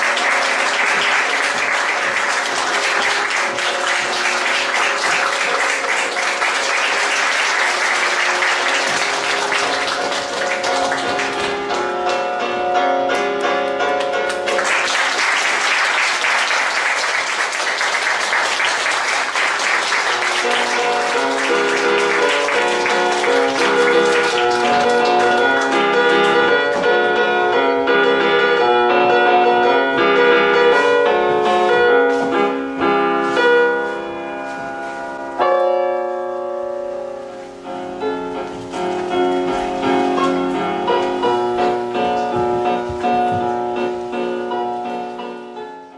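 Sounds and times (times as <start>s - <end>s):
audience applauding: 0.0s - 12.3s, 14.0s - 27.1s
instrumental music with piano: 0.0s - 45.9s.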